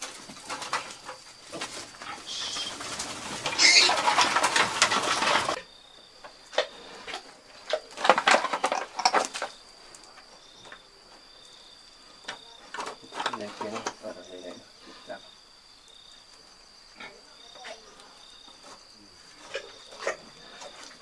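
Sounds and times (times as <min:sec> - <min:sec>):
piglets squealing: 0:03.5 - 0:04.3.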